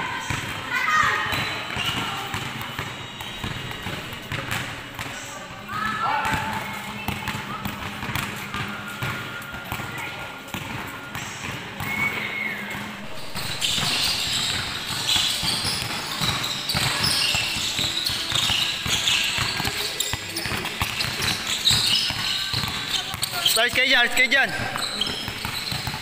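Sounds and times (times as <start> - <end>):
basketballs bouncing on court: 0.1 - 26.0.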